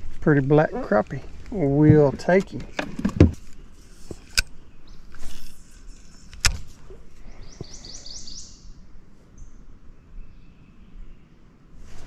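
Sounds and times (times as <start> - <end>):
handling clicks and knocks: 1.8 - 3.5.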